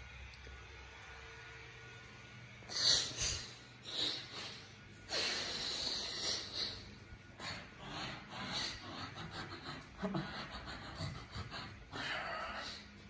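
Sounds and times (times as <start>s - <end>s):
person breathing: 2.7s - 13.0s.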